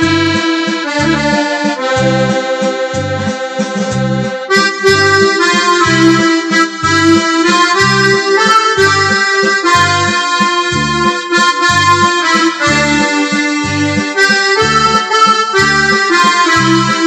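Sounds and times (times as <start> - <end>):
electronic keyboard accordion melody: 0.0 - 17.0
low bass notes: 0.0 - 17.0.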